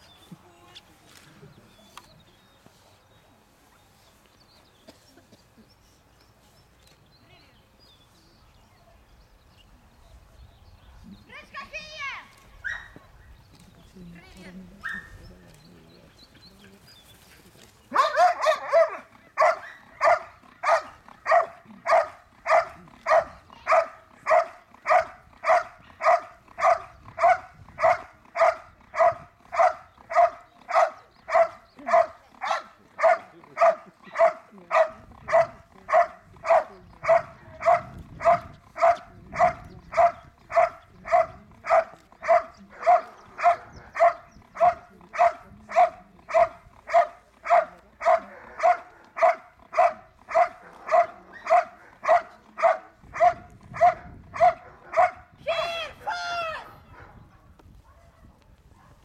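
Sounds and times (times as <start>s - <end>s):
dog barking: 12.6s - 13.0s, 14.8s - 15.1s, 17.9s - 55.3s, 56.8s - 59.0s.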